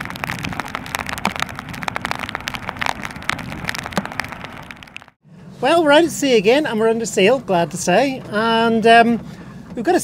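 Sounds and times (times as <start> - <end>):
water rushing past a hull: 0.0 - 5.2.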